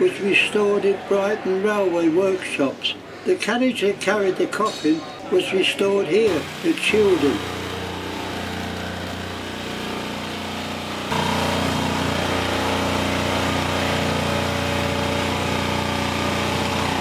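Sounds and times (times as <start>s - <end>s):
electric sander on wood: 6.2s - 17.0s.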